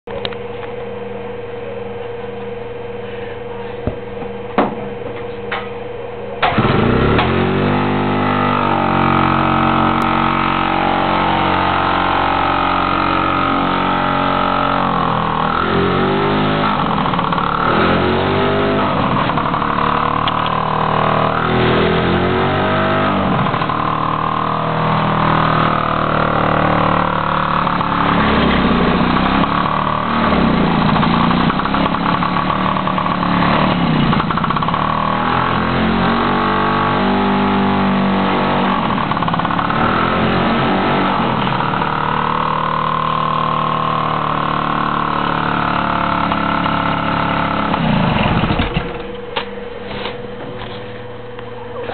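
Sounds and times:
steady hum: 0.1 - 34.7, 48.3 - 51.9
scooter engine revving: 6.4 - 51.9.

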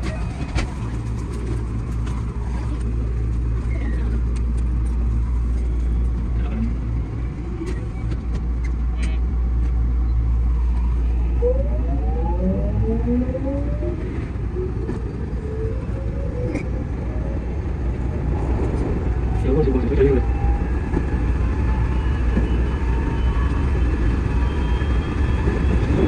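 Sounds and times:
train motors whining rising pitch: 10.5 - 18.2.

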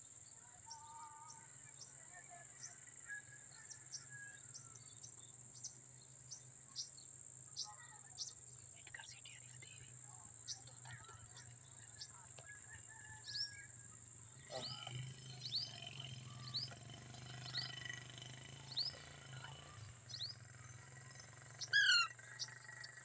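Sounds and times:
crickets trilling: 0.0 - 23.0
parakeets chirping: 14.3 - 23.0.

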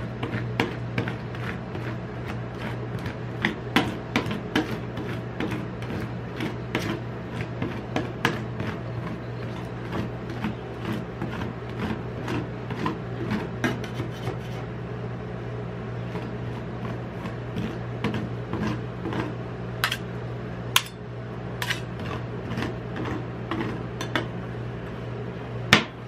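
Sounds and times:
steady low hum: 0.0 - 26.0
metal spatula scraping steel plate: 21.6 - 24.2.

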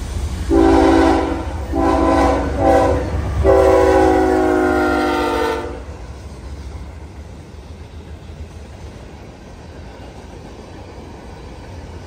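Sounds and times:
diesel engine and wheels rumbling: 0.0 - 12.0
train air horn blasts: 0.5 - 6.0.

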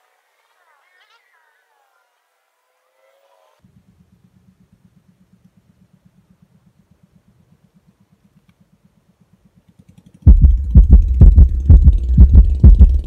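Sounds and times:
small engine puttering: 2.8 - 13.0.

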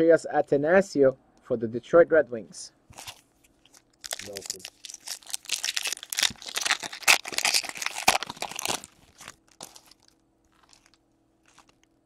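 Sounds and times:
wrapper crinkling and tearing: 2.9 - 11.9.

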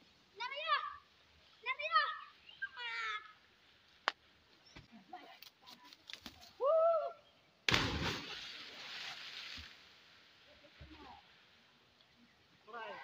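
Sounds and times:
person whooping: 6.6 - 7.2
loud splash into water: 7.7 - 9.7.

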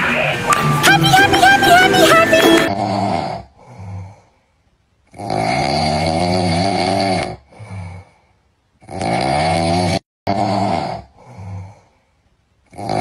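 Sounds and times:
loud snoring: 2.7 - 4.2, 5.1 - 8.2, 8.8 - 11.9, 12.7 - 13.0.

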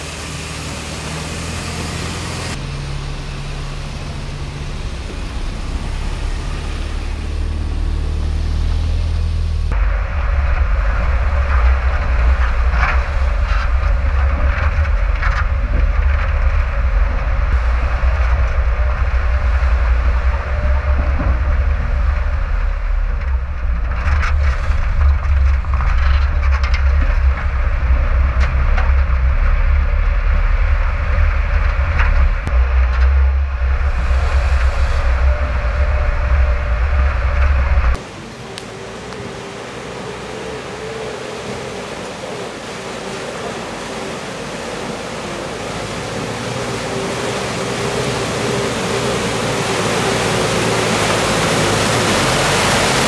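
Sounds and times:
off-road vehicle rumbling: 0.0 - 53.0
knocks and rattles: 9.7 - 38.0.

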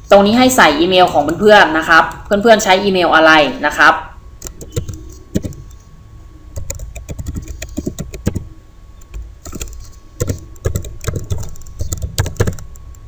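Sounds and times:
typing on computer keyboard: 4.4 - 5.8, 6.6 - 8.4, 9.0 - 13.0.

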